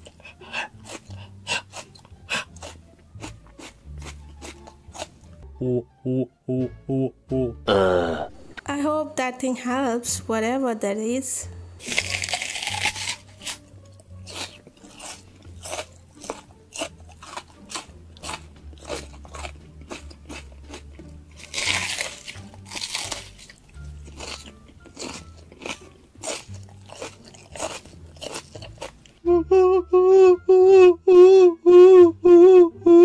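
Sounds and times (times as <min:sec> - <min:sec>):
raw onion crunching: 0:00.0 - 0:05.4, 0:11.8 - 0:29.2.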